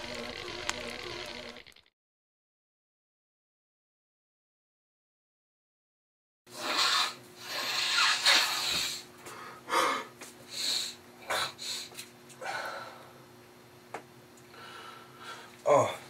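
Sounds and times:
low electrical hum: 0:00.0 - 0:01.9, 0:06.5 - 0:16.0.

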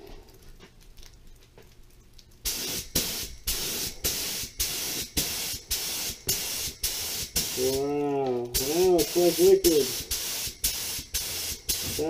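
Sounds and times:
paint spray gun hissing bursts: 0:02.5 - 0:07.9, 0:08.6 - 0:12.0.

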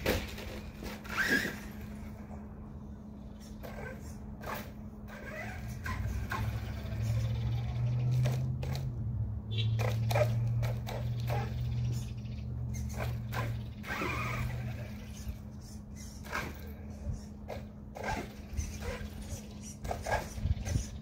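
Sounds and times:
truck knocking and clattering: 0:00.0 - 0:01.0
toy truck motor hum: 0:00.0 - 0:02.4, 0:03.3 - 0:21.0.

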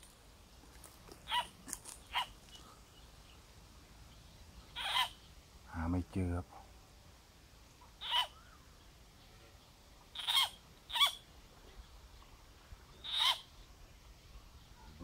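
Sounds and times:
frog distress screams: 0:01.3 - 0:01.5, 0:04.8 - 0:05.2, 0:08.0 - 0:08.4, 0:10.2 - 0:11.2, 0:13.0 - 0:13.5.

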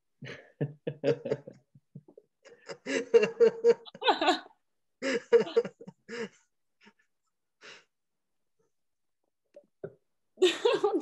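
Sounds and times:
people laughing: 0:00.2 - 0:06.3, 0:10.4 - 0:11.0.

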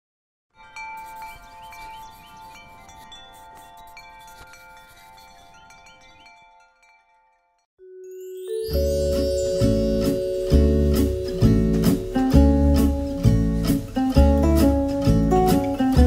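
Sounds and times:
chimes ringing: 0:00.6 - 0:12.8.

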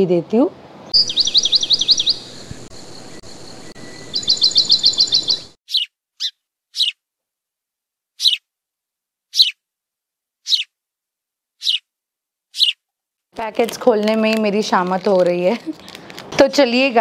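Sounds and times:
sharp bird chirps: 0:00.9 - 0:07.0, 0:08.2 - 0:08.5, 0:09.3 - 0:09.6, 0:10.4 - 0:10.7, 0:11.6 - 0:11.9, 0:12.5 - 0:12.8
songbird trilling: 0:00.9 - 0:07.0, 0:08.2 - 0:08.4, 0:09.3 - 0:09.6, 0:10.5 - 0:10.7, 0:11.6 - 0:11.8, 0:12.6 - 0:12.8.

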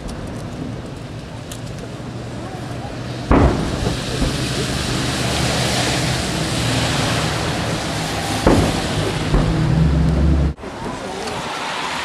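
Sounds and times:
steady rushing noise: 0:00.0 - 0:12.0
gun firing sharp boom: 0:03.3 - 0:04.4, 0:08.4 - 0:09.8.

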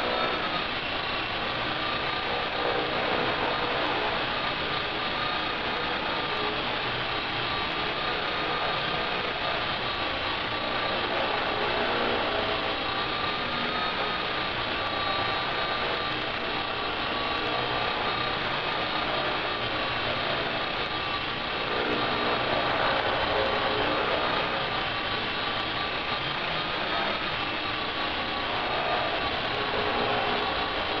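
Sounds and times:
electric motor high whine: 0:00.0 - 0:31.0
rotor blades rushing: 0:00.0 - 0:31.0.

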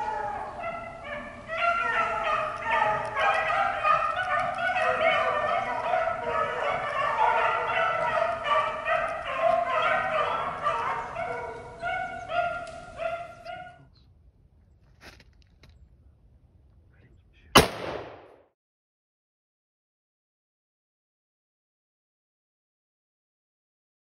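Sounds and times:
hounds baying: 0:00.0 - 0:13.9.

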